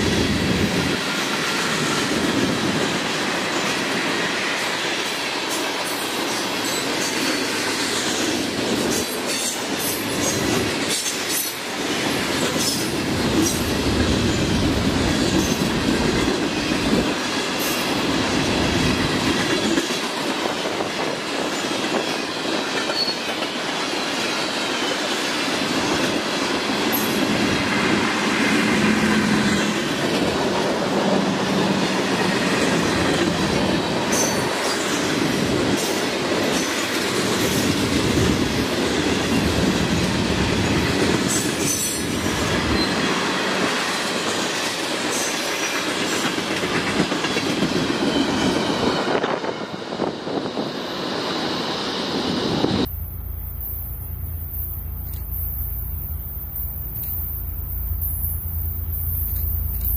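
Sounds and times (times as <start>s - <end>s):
train wheels clacking over rail joints: 0.0s - 30.8s, 31.8s - 48.4s
wheel squeal: 53.4s - 59.9s.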